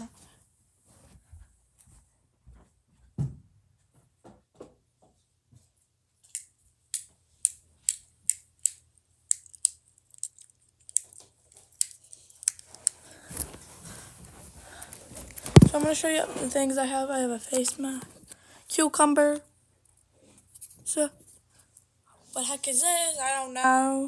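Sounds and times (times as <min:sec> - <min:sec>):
soft rustling: 0:12.8 - 0:18.3.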